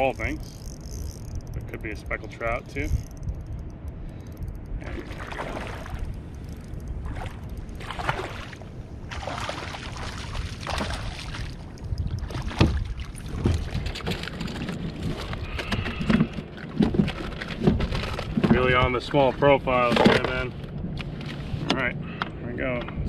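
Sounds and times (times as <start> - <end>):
wind rumble on microphone: 0.0 - 23.0
fish splashing and thrashing: 3.0 - 18.5.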